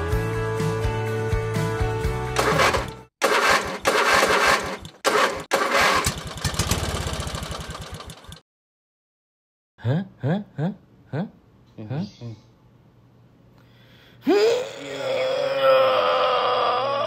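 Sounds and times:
vehicle engine cranking and starting: 2.4 - 8.4.

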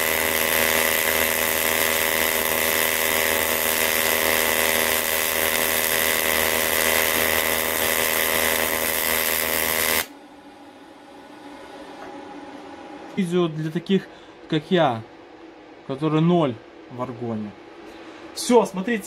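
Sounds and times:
welding arc hissing: 0.0 - 10.1.

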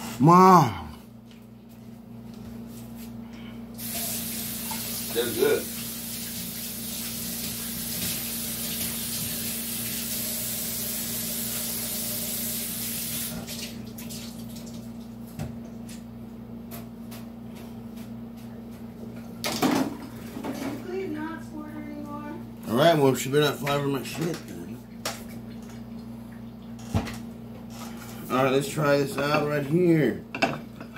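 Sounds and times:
water running from a tap: 3.8 - 15.2
low steady hum: 13.4 - 30.9.

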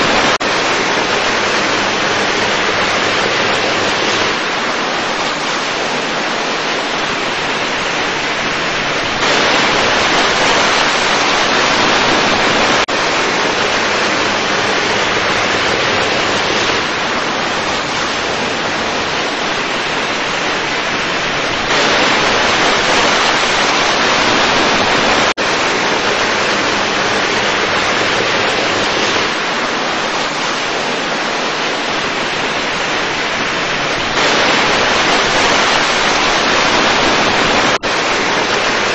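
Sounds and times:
steady rushing hiss: 0.0 - 38.9.

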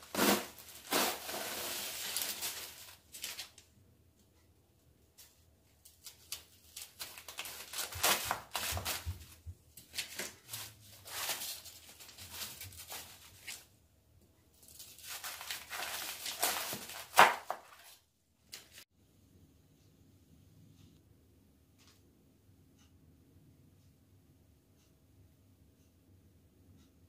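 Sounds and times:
cabbage leaves crunching and tearing: 14.9 - 17.6.

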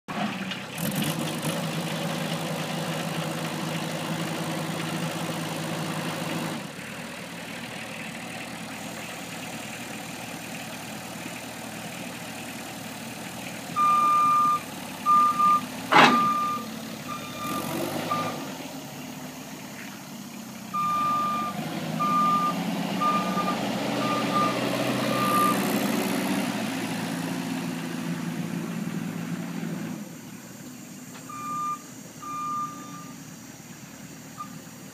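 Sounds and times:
truck engine running: 0.1 - 34.9
backup alarm beeping: 13.8 - 18.4, 20.8 - 25.6, 31.3 - 33.2.

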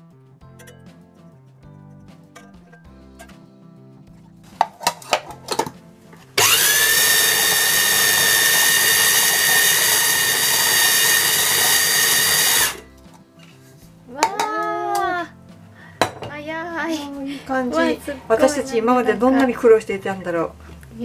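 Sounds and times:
food processor motor whining: 6.4 - 12.8.

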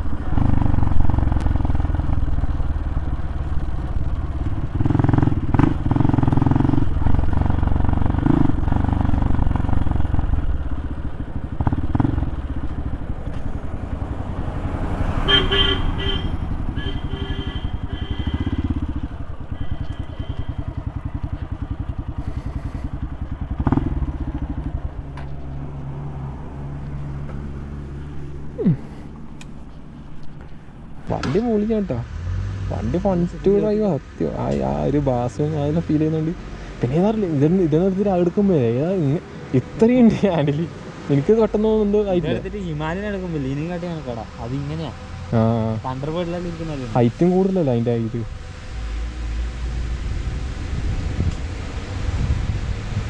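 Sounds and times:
motorcycle engine running: 0.0 - 53.0
vehicle horn honking: 15.2 - 20.8.

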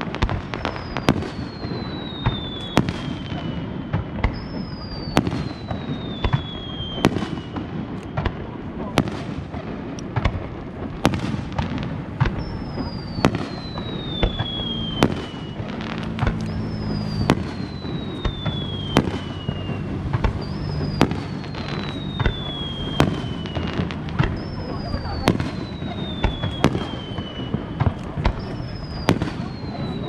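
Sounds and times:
whistling fireworks: 0.0 - 30.0
firework shells bursting: 9.3 - 30.0.

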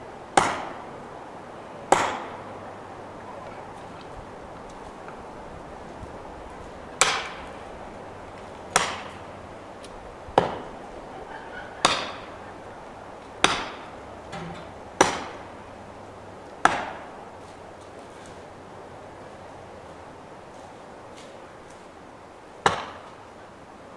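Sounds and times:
hammer striking felling wedge: 0.4 - 0.8, 1.9 - 2.4, 7.0 - 7.6, 8.7 - 9.3, 10.4 - 10.7, 11.8 - 12.3, 13.4 - 15.5, 16.6 - 17.1, 22.6 - 23.2.

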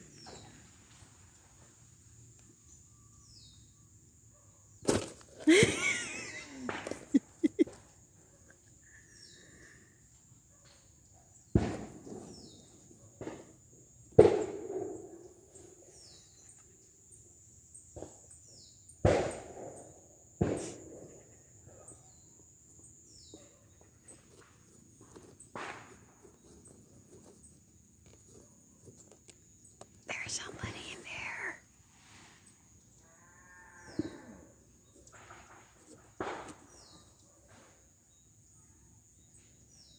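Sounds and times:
knocks on a cardboard box: 11.6 - 12.3, 19.1 - 19.5.

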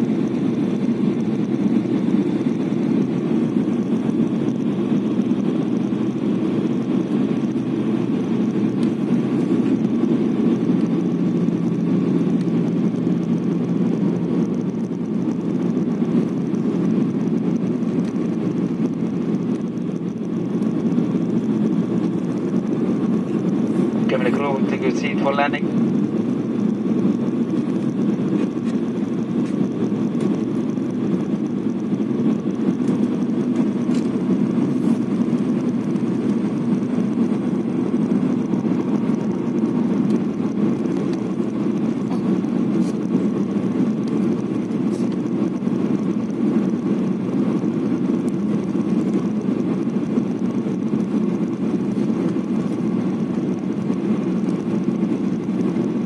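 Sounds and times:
airliner cabin drone: 0.0 - 56.0.

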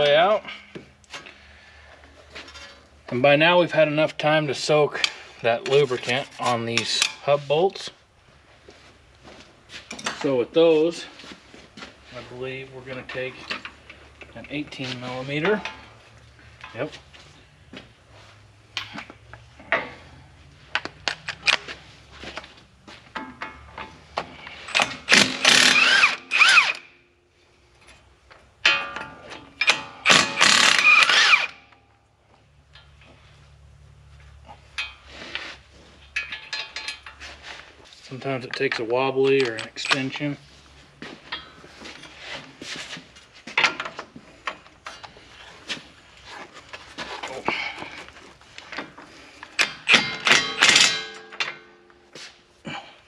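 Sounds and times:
impact wrench motor whine: 25.0 - 26.9, 30.0 - 31.6
metal hand tools clinking: 49.6 - 51.9.

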